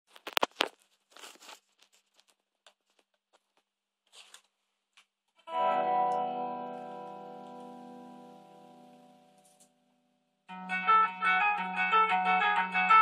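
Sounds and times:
handling clicks and rustles: 0.1s - 4.5s
electric guitar chord strummed: 5.5s - 9.5s.

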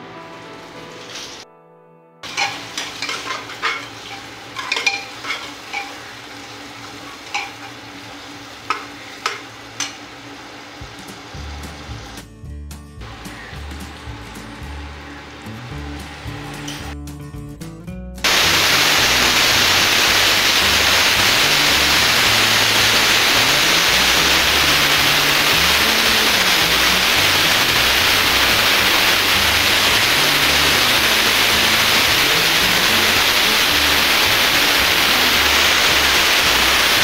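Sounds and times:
loud static hiss: 2.2s - 12.2s, 13.0s - 17.0s, 18.2s - 37.0s
faint background music: 10.4s - 18.2s.

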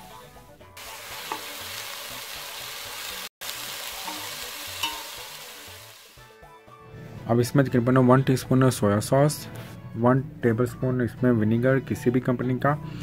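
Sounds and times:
food sizzling in a pan: 0.0s - 6.3s.

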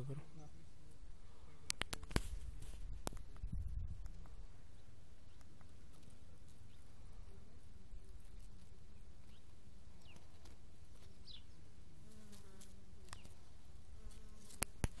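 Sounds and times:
bee wings buzzing: 5.4s - 15.0s.

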